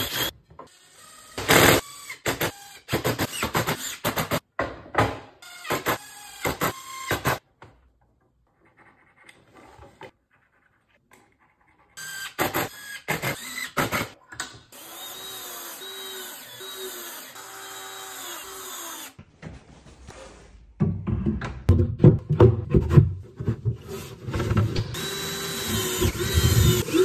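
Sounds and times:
drill motor running: 14.8 - 19.1, 24.8 - 27.0.

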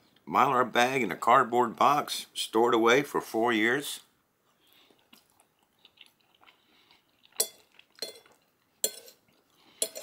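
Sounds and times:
chewing food: 4.5 - 10.0
fork scraping a plate: 7.4 - 10.0.

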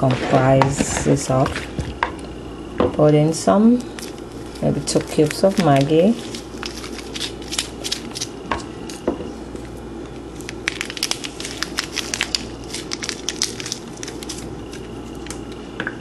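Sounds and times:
steady low hum: 0.0 - 16.0
stock cubes crumbling crackles: 3.8 - 8.3, 10.5 - 15.4.

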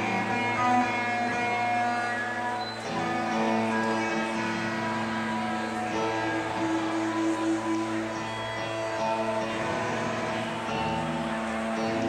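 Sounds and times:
electric guitars sustained chords: 0.0 - 12.0.

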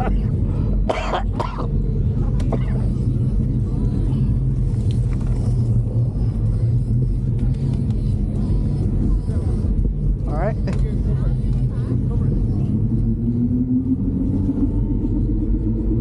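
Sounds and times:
voices: 0.0 - 15.8
wind rumble on microphone: 1.8 - 16.0.

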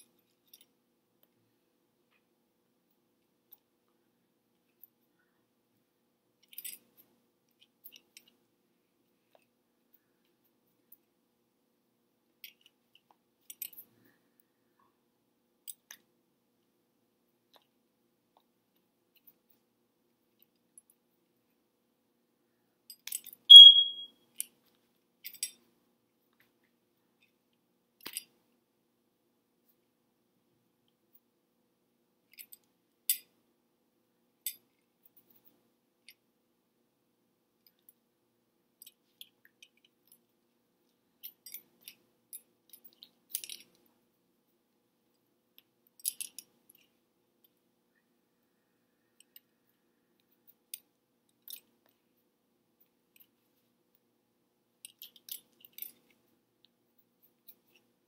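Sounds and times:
faint low hum: 0.0 - 58.0.

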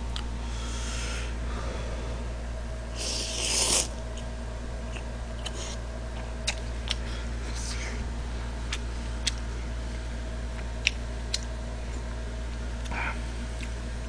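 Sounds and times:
steady low hum: 0.0 - 14.0
man slurping noodles: 3.0 - 3.9.

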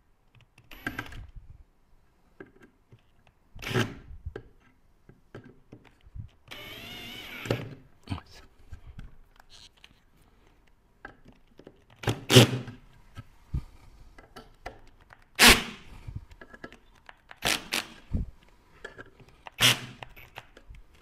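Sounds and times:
drill driving screws into metal: 6.5 - 7.7, 15.4 - 15.8, 17.4 - 18.0, 19.5 - 20.2.

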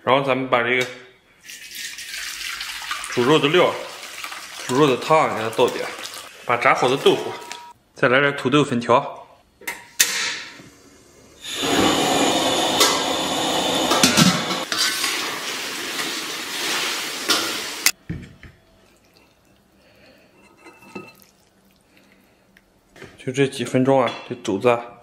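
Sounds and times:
food sizzling in a wok: 11.4 - 18.0.

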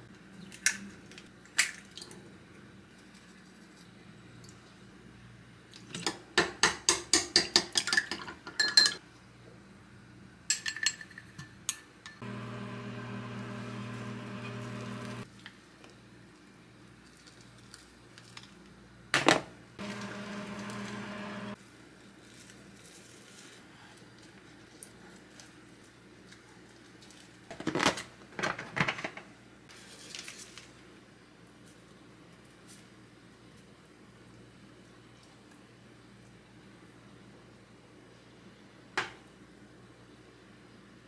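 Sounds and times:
steady hum: 12.2 - 15.2, 19.8 - 21.6.

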